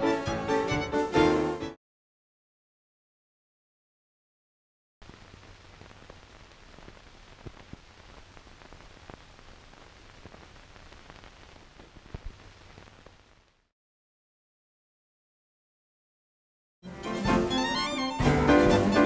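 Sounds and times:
crackles and pops: 5.0 - 13.7
faint steady hiss: 5.0 - 13.7.

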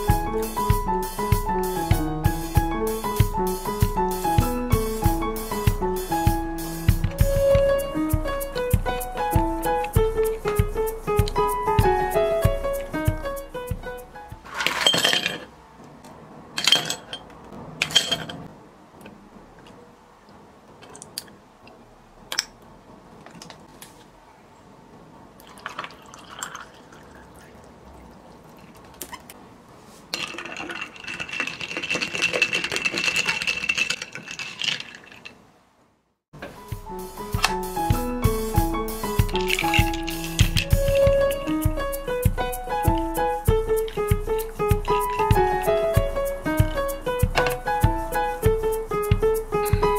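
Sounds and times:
water pouring over ice: 25.4 - 27.7, 30.2 - 35.3
ice clinking in glass: 30.2 - 35.3.

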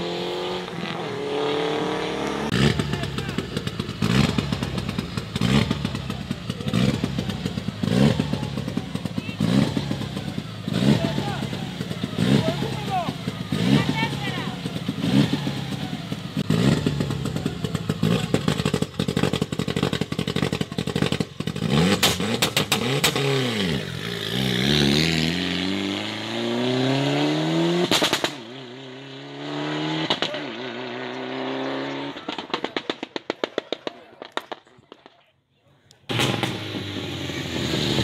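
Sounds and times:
rally car engine revving: 0.0 - 33.0, 36.1 - 38.0
exhaust pops and crackles: 2.2 - 23.9, 27.9 - 28.5, 30.0 - 30.4, 31.9 - 38.0.

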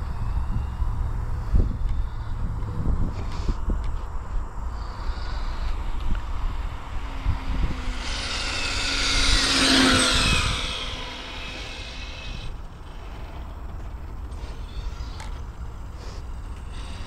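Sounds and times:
wind on microphone: 0.0 - 13.6
rc car electric motor whining: 3.1 - 17.0.

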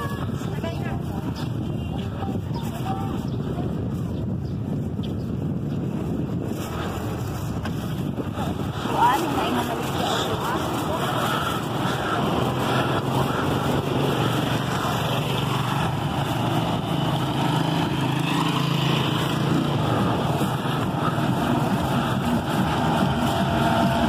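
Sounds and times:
street traffic noise: 0.0 - 24.0
small motorcycle engine running: 9.0 - 24.0.

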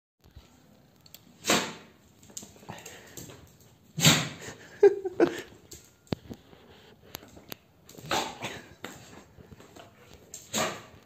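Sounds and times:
dog making short noisy bursts: 10.5 - 10.9.

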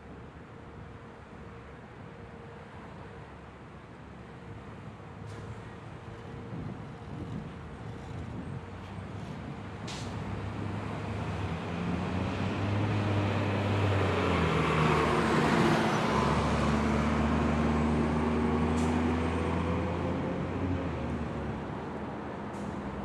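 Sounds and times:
cars driving by: 8.1 - 23.0.

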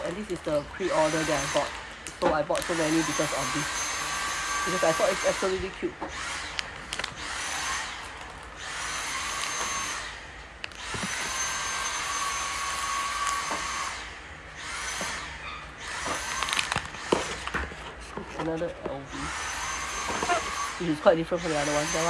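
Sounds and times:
plastic packet crinkling: 0.0 - 3.7, 4.6 - 9.9, 10.6 - 13.8, 15.9 - 19.1.

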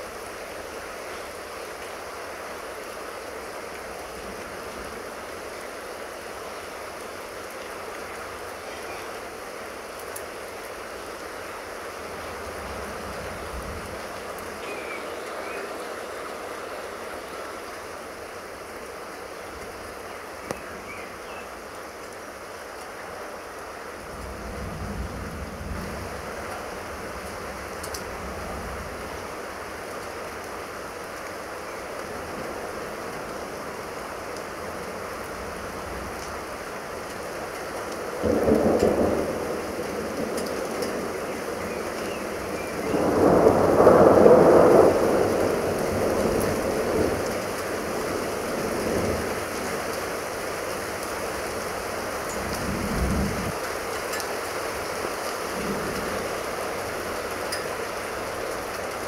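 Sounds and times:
steady rain: 0.0 - 59.0
thunder rumbling: 38.2 - 49.8, 52.3 - 53.6.

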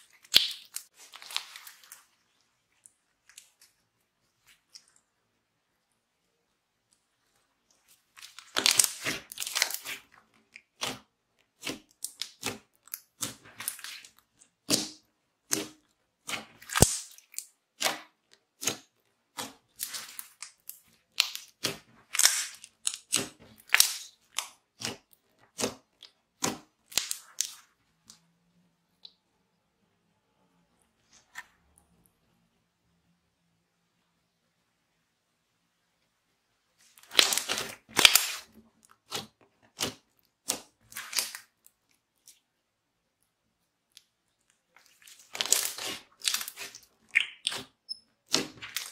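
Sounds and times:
slime squishing with wet pops: 0.0 - 5.2, 7.6 - 28.2, 36.9 - 48.9.

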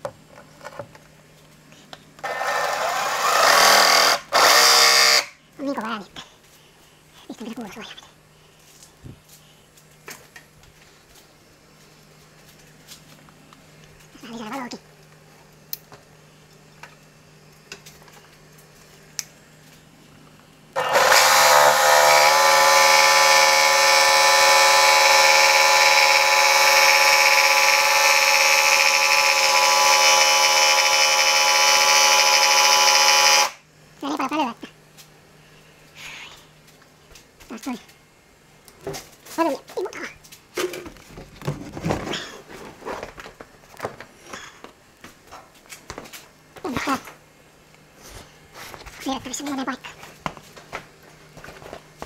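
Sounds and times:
jigsaw cutting: 2.2 - 5.3, 20.8 - 33.6.

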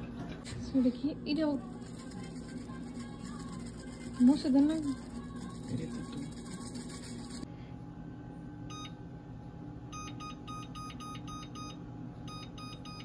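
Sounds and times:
oven control panel beeps: 8.7 - 9.0, 9.9 - 13.0.

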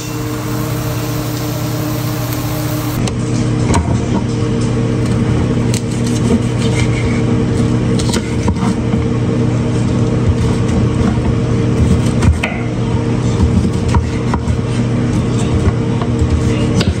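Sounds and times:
low mechanical hum: 0.0 - 17.0
knife and tongs scraping board: 5.9 - 8.8.

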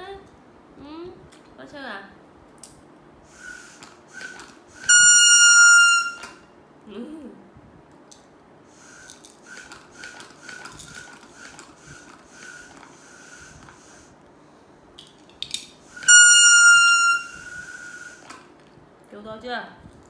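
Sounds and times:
plastic toy horn tooting: 4.2 - 6.4, 16.0 - 18.2.

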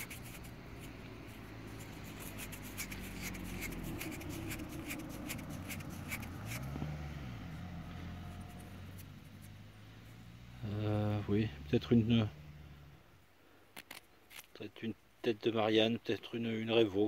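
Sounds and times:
thumb scratching metal coin: 0.0 - 6.7.

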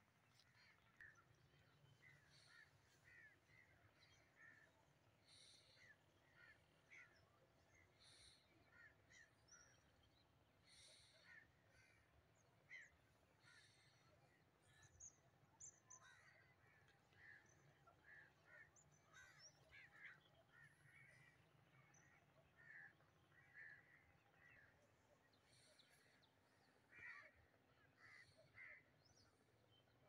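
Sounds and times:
crow cawing: 2.1 - 3.7, 18.0 - 21.9, 22.6 - 24.6, 26.9 - 27.4, 28.0 - 28.8.

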